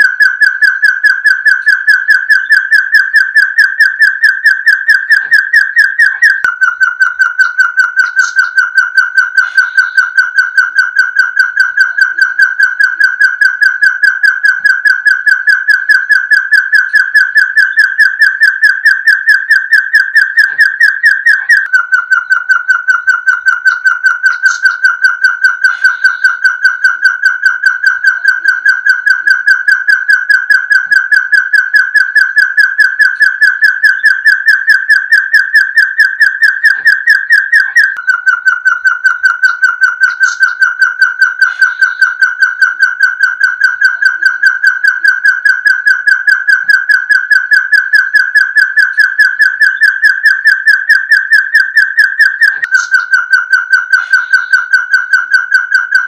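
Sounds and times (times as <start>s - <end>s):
partridge whistled calls: 1.5s - 10.6s, 16.7s - 27.0s, 33.1s - 42.4s, 52.4s - 54.8s.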